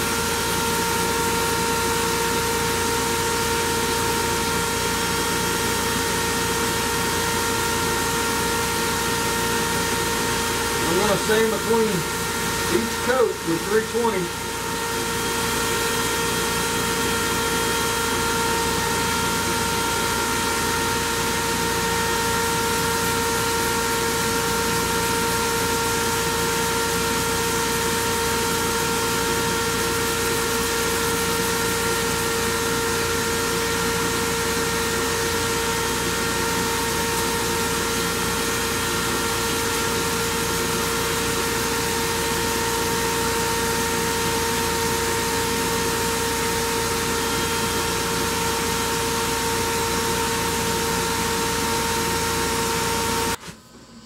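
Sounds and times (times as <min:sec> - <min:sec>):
dust extractor running: 0:00.0 - 0:53.8
wood lathe whining: 0:08.6 - 0:33.9.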